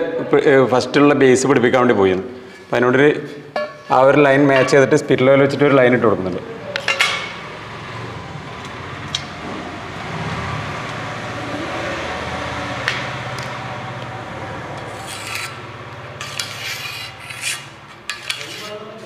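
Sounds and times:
pencil scratching on wall: 14.8s - 18.8s.

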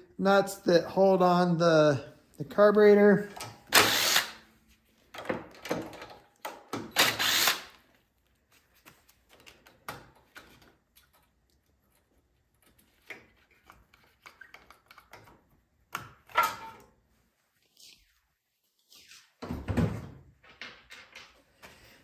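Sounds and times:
impact driver bursts: 3.7s - 4.4s, 6.8s - 7.8s.

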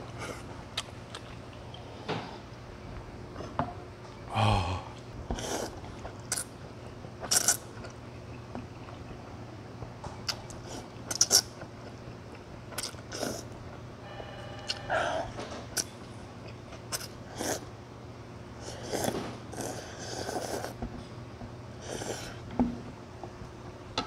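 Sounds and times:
person slurping and chewing noodles: 5.3s - 6.5s, 7.2s - 8.0s, 10.3s - 12.0s, 12.7s - 13.5s, 16.9s - 17.7s, 18.6s - 20.8s.

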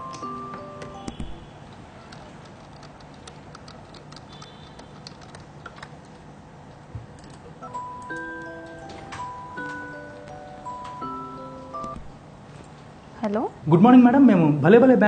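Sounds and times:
bell-like melody: 0.0s - 1.2s, 7.6s - 12.0s.

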